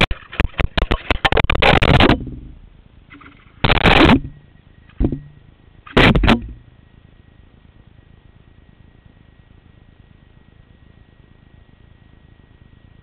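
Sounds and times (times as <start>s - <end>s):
camera clattering across ground: 0.0s - 6.7s.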